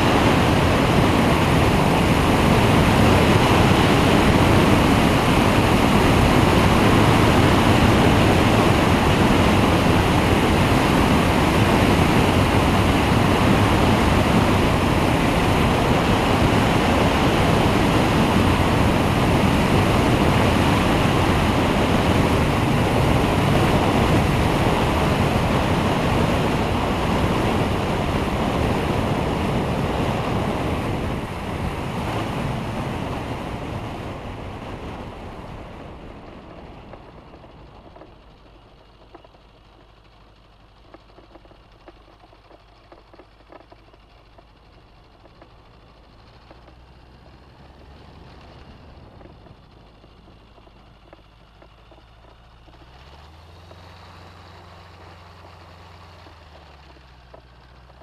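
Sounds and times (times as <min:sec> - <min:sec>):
wind buffeting microphone: 0:00.0 - 0:38.2.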